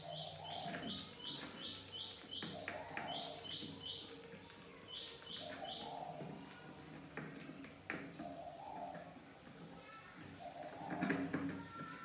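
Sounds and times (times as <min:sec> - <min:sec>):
bird chirping: 0:00.0 - 0:06.2.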